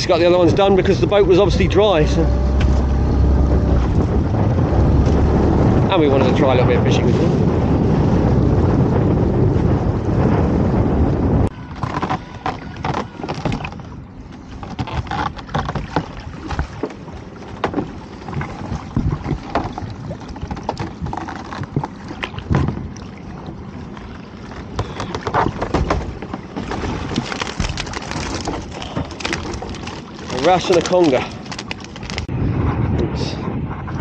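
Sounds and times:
water slapping against boat hull: 0.0 - 8.8, 11.0 - 32.3
water splashes: 11.4 - 32.3.

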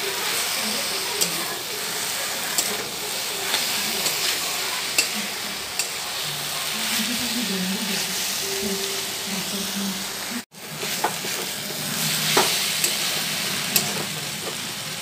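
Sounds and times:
food sizzling in a pan: 0.0 - 15.0
spatula clicking against pan: 5.0 - 5.2, 5.8 - 6.0, 13.7 - 14.1
spatula stirring and scraping: 10.6 - 14.6.

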